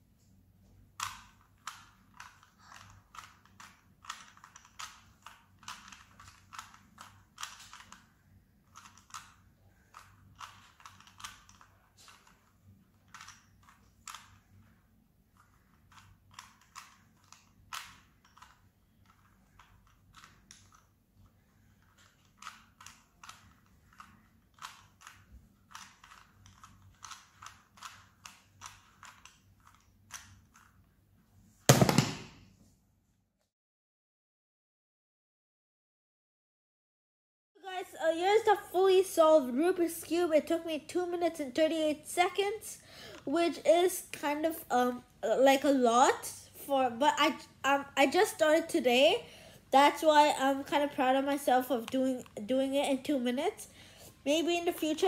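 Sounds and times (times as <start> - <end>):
puzzle cube layers clicking: 1.0 - 14.5, 15.4 - 20.9, 21.6 - 30.9
cube knocking down on surface: 31.7 - 32.4.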